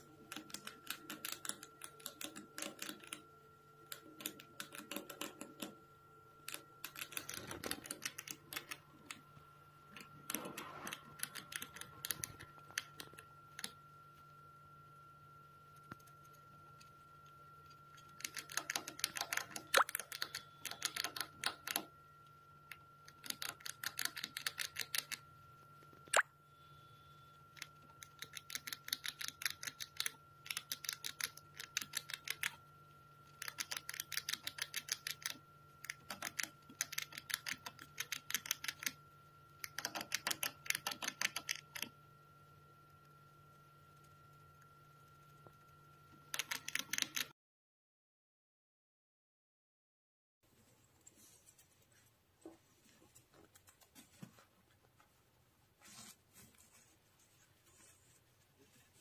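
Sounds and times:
rat gnawing a hard biscuit: 3.9 - 5.8, 6.4 - 9.3, 17.9 - 21.9, 22.7 - 25.3, 27.6 - 32.6, 33.3 - 39.0.

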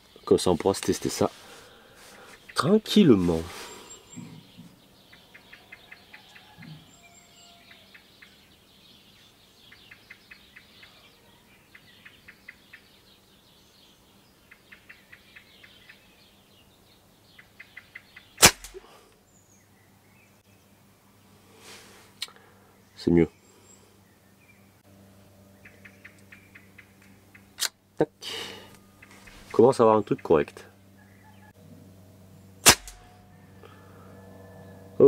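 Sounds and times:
faint chirps: 1.4 - 7.9
air rifle shot: 18.4 - 18.9, 32.6 - 33.1.

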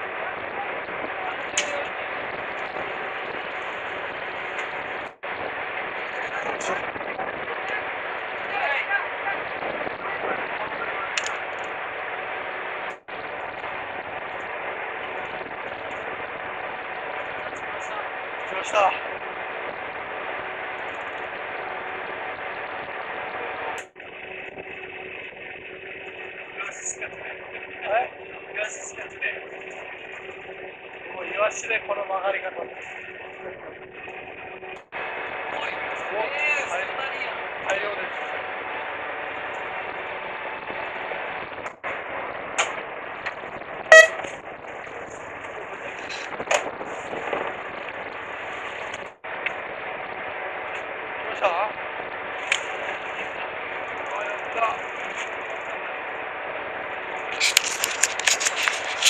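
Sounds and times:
wind and sea noise: 0.0 - 55.8
faint engine hum: 0.0 - 59.0
sharp clicks: 11.2 - 11.7
short pitched honk: 43.9 - 44.4.

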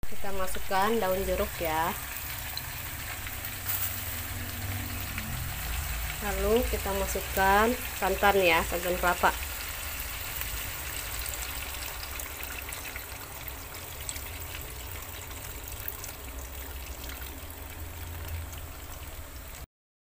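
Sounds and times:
light frying crackle: 0.0 - 19.7
liquid pouring into a pan: 9.4 - 19.6.

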